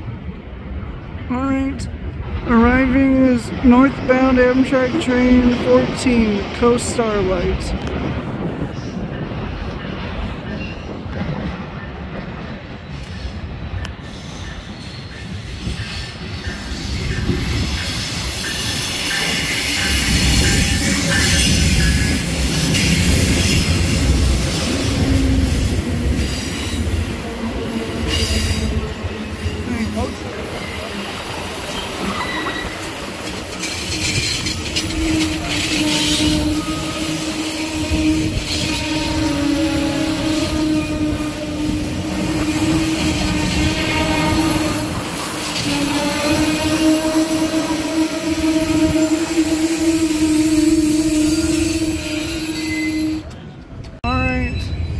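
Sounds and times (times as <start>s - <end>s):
diesel locomotive rumbling past: 0.0s - 54.9s
wheels and brakes squealing: 14.0s - 23.9s, 29.4s - 44.5s, 48.4s - 53.6s.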